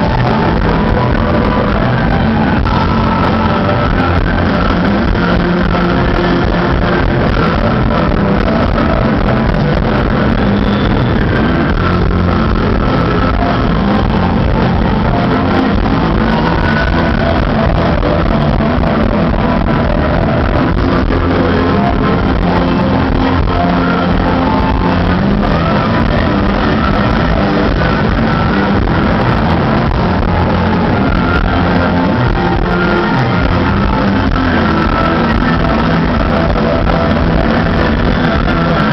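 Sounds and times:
rock band playing live: 0:00.0 - 0:38.9.

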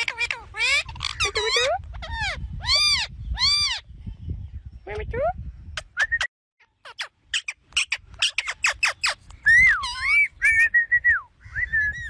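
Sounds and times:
parakeet chirping: 0:00.0 - 0:03.9, 0:06.6 - 0:10.7.

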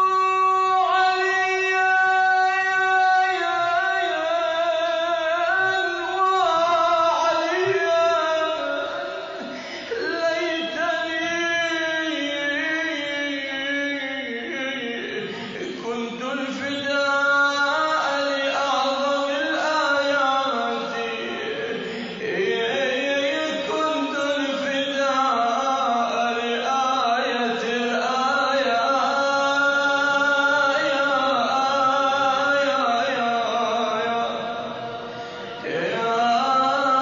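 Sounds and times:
man chanting: 0:00.0 - 0:37.0.

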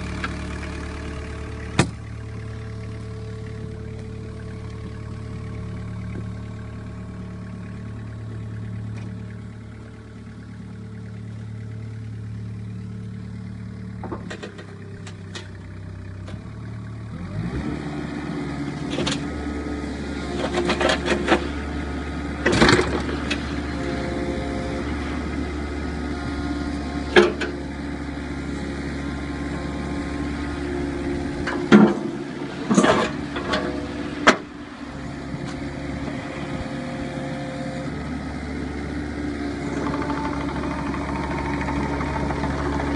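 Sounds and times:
excavator diesel engine: 0:00.0 - 0:42.9
metal clanks: 0:31.4 - 0:34.5.

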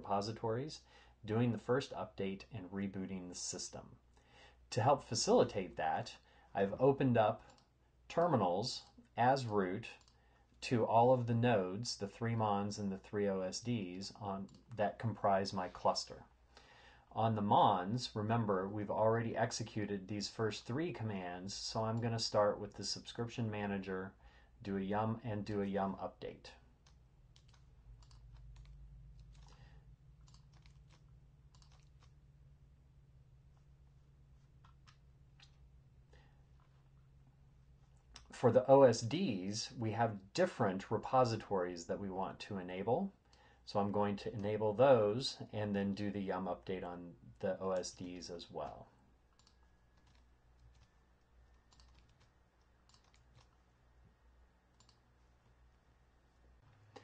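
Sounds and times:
low steady hum: 0:00.0 - 0:57.0
computer keys clicking: 0:26.8 - 0:32.3, 0:34.4 - 0:35.7, 0:47.8 - 0:53.6, 0:54.7 - 0:55.1.

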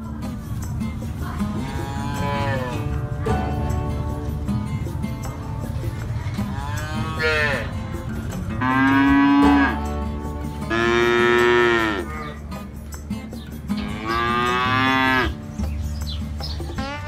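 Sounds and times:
cattle mooing: 0:01.6 - 0:03.0, 0:06.4 - 0:07.8, 0:08.6 - 0:09.8, 0:10.7 - 0:12.4, 0:13.8 - 0:15.4.

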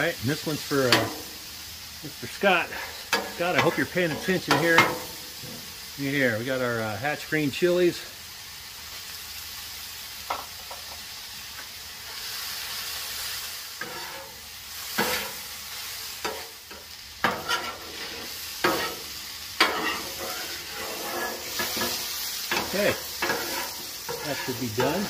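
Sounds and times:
meat sizzling on griddle: 0:00.0 - 0:25.0
metal spatula scraping: 0:02.5 - 0:05.9, 0:13.7 - 0:15.5, 0:16.1 - 0:25.0
spatula clacking on steel plate: 0:19.6 - 0:20.1, 0:21.2 - 0:25.0.

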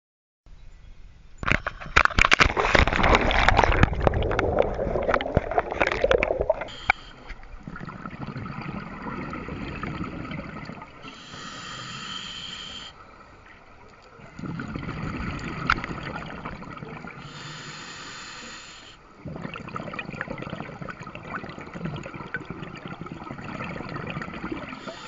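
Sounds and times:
underwater wash: 0:01.4 - 0:25.0
underwater bubbles rushing: 0:02.1 - 0:11.0, 0:13.8 - 0:17.3, 0:19.2 - 0:25.0.

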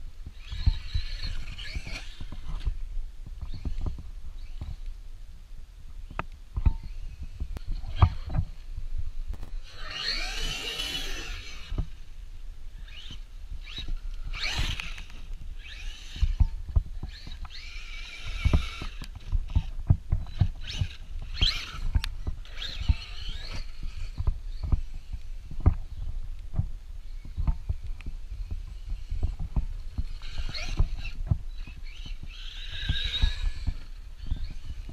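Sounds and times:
electric motor whining: 0:00.2 - 0:02.8, 0:09.4 - 0:12.2, 0:12.8 - 0:25.3, 0:28.4 - 0:34.9.

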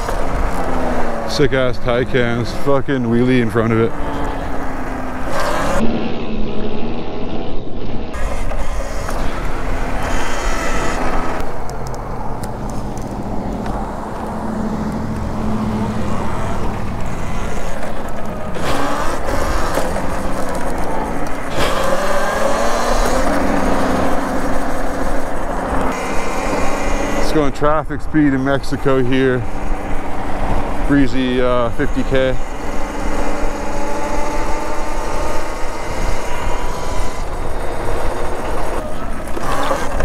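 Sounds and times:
electric motor whine: 0:00.0 - 0:40.0
wind rushing over microphone: 0:17.9 - 0:39.6.

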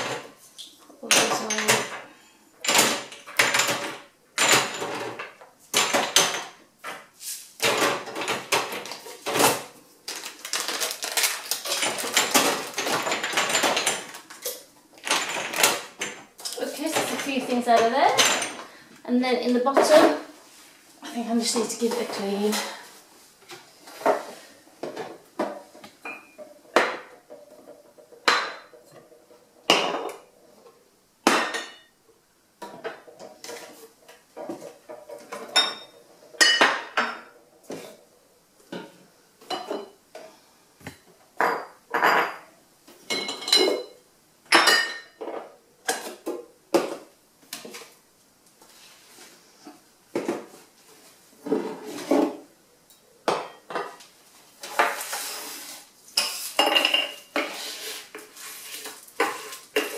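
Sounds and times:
glass bottles clinking: 0:26.0 - 0:28.9, 0:35.1 - 0:37.4, 0:43.1 - 0:45.2, 0:56.2 - 0:57.4.

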